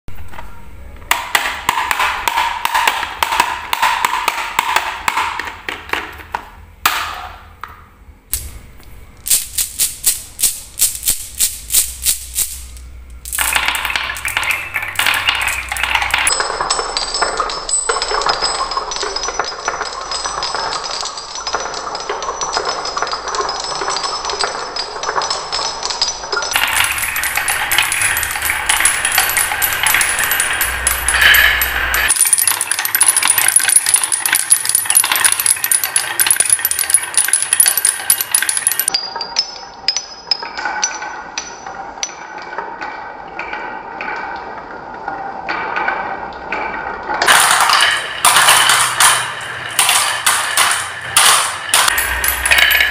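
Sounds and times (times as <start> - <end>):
marbles bouncing off wooden pegs: 1.1 - 8.5, 9.2 - 44.5, 45.5 - 52.9
marbles rolling down wooden run: 9.3 - 39.0, 45.6 - 52.9.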